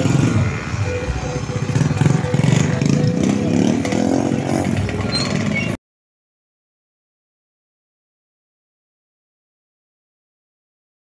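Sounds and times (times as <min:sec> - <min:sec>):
motorcycles revving: 0:00.0 - 0:05.8.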